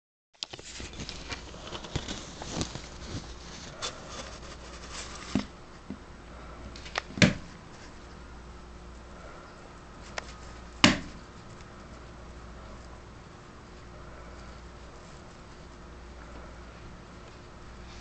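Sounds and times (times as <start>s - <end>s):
handling noise rubbing and clicks: 0.4s - 5.6s, 9.8s - 17.6s.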